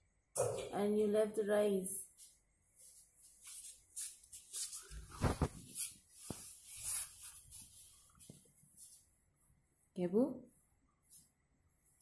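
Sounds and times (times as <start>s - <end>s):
phone being handled rustling: 5.0s - 5.7s.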